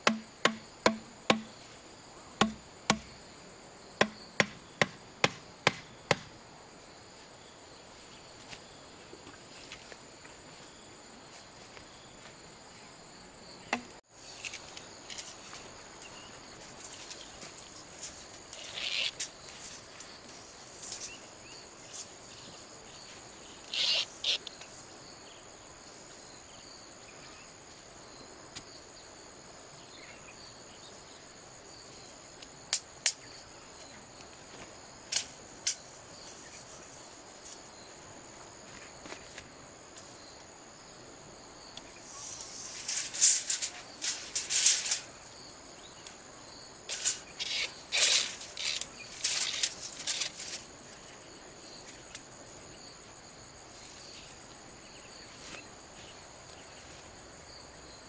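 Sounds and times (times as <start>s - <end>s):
machete chopping bamboo: 0.0s - 1.5s, 2.4s - 3.2s, 4.0s - 6.3s
insects droning: 0.0s - 58.0s
scrapes and rustles in grass: 42.0s - 45.2s.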